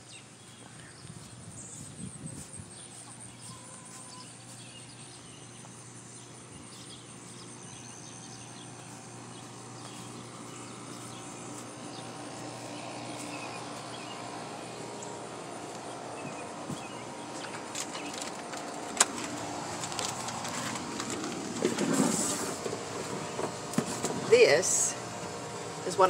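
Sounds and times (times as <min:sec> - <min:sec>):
birds chirping: 0:00.0 - 0:21.8
insects: 0:00.0 - 0:26.0.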